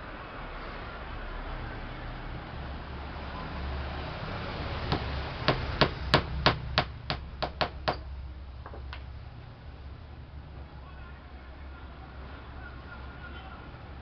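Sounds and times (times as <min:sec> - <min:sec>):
hammer tapping nails into plywood: 0:04.9 - 0:08.1.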